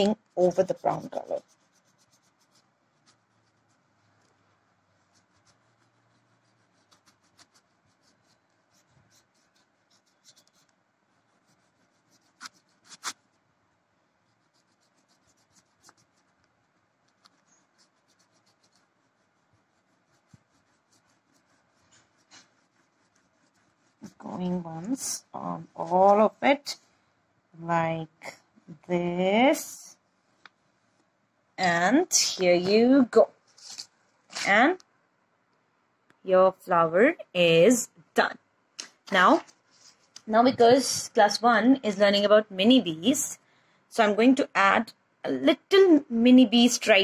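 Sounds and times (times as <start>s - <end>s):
crayon scratching on paper: 0.0s - 13.4s, 14.2s - 26.8s, 39.1s - 43.4s.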